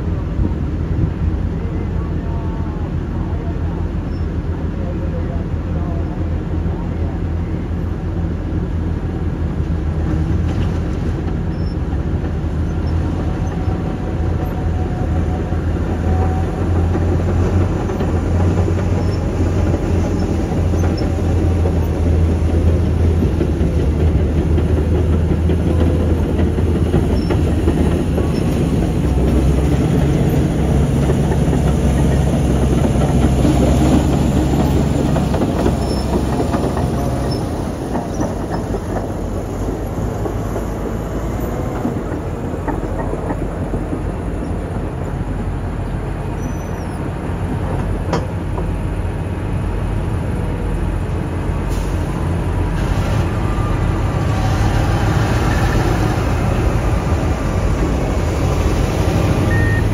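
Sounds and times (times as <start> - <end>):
heavy diesel machinery droning: 0.0 - 59.9.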